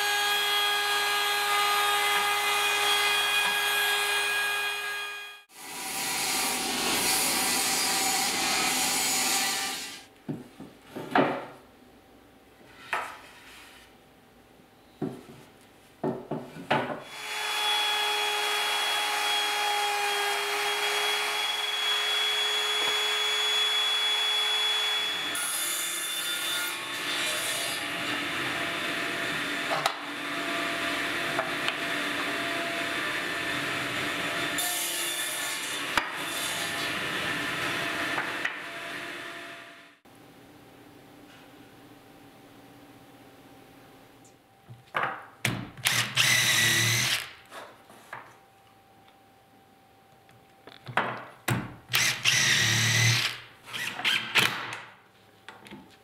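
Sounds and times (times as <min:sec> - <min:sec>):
sawing: 0:00.0 - 0:10.1.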